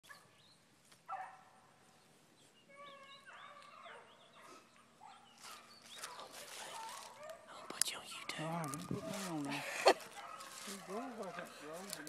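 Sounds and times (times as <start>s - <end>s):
dogs baying and yelping: 2.7s - 12.0s.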